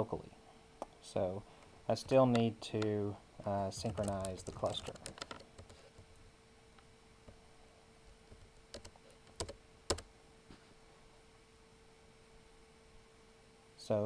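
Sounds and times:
faint steady hum: 0:00.0 - 0:14.0
keyboard keystrokes: 0:03.7 - 0:05.8, 0:08.3 - 0:10.0.

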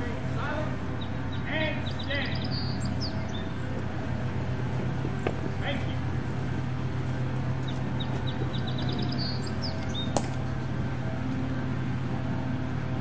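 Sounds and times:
steady low hum: 0:00.0 - 0:13.0
small bird chirping: 0:01.0 - 0:03.6, 0:07.6 - 0:10.2.

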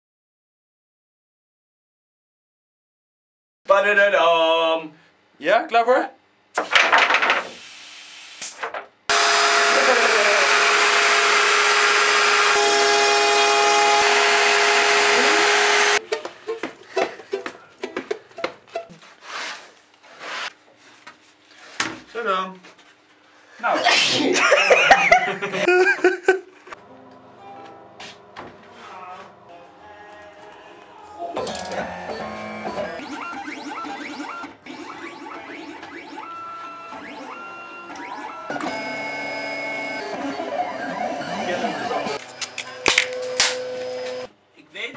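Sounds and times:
cutting plotter motors whining: 0:09.1 - 0:16.0, 0:31.4 - 0:44.3
router spindle milling wood: 0:09.1 - 0:16.0.

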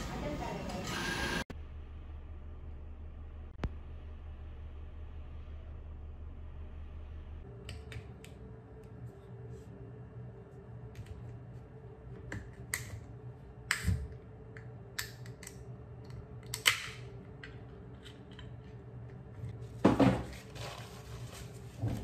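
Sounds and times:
paper tissue rustling: 0:20.2 - 0:22.0.

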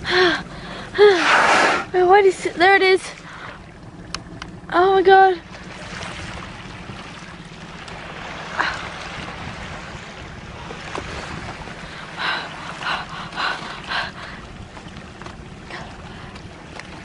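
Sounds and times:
water lapping against canoe: 0:00.0 - 0:17.0
water splashes: 0:00.0 - 0:17.0
wind buffeting microphone: 0:03.8 - 0:17.0.

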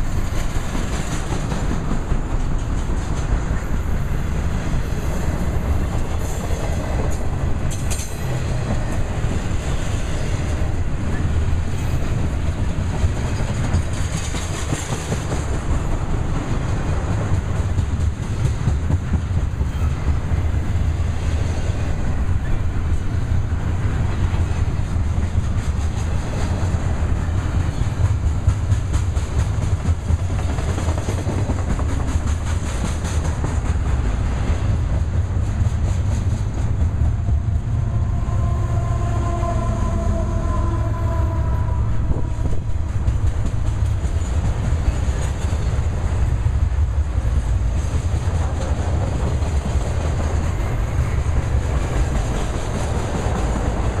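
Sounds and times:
steel wheels rumbling on rail: 0:00.0 - 0:54.0
wheels clicking over rail joints: 0:05.3 - 0:21.0.

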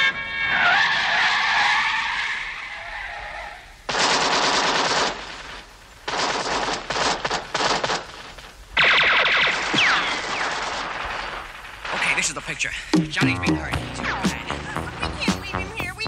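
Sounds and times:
machine gun bursts: 0:03.9 - 0:08.2, 0:08.8 - 0:12.2
single gunshots: 0:03.9 - 0:08.2, 0:08.8 - 0:12.4.

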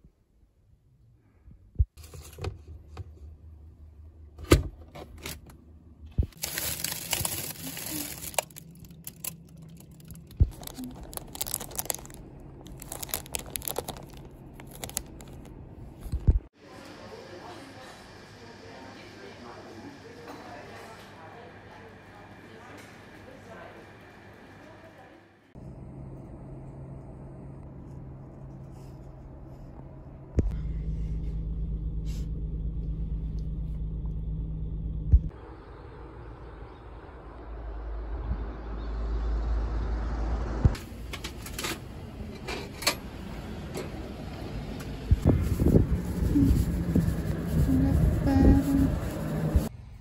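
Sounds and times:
vehicle cabin rumble: 0:01.8 - 0:16.5, 0:27.6 - 0:35.5, 0:40.4 - 0:49.7
plastic packaging crinkling: 0:06.4 - 0:15.5.

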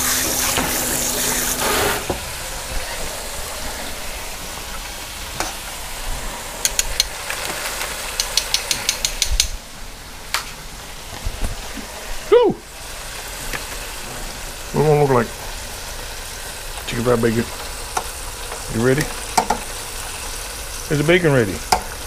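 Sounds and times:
oil sizzling in deep fryer: 0:00.0 - 0:22.0
metal tongs clicking: 0:08.2 - 0:09.6.

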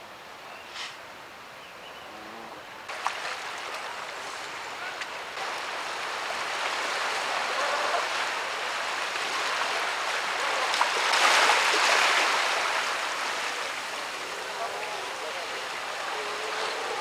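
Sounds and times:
surf breaking against rocks: 0:05.4 - 0:17.0.

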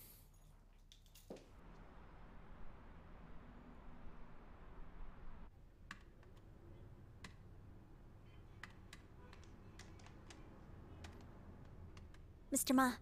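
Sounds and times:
keyboard typing clicks: 0:08.6 - 0:12.3.

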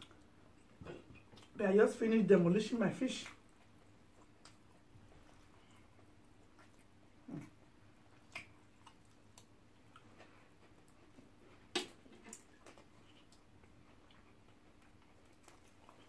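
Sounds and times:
chewing clicks: 0:03.3 - 0:04.8, 0:08.1 - 0:11.0
mouth smacks: 0:08.2 - 0:10.1.

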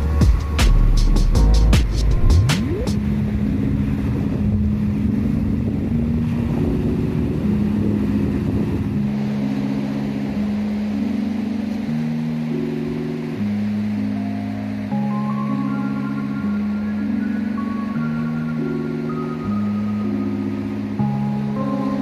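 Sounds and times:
soft noisy wash: 0:00.0 - 0:22.0.

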